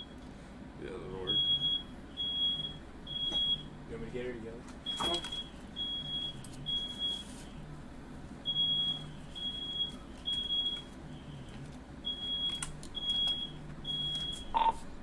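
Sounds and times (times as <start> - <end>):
smoke alarm beeping: 1.3 - 3.8, 4.8 - 7.6, 8.4 - 14.8.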